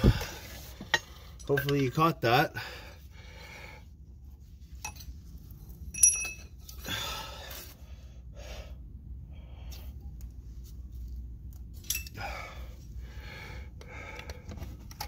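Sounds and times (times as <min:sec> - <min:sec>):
metal hand tools clinking: 0:05.9 - 0:06.6, 0:11.8 - 0:12.2.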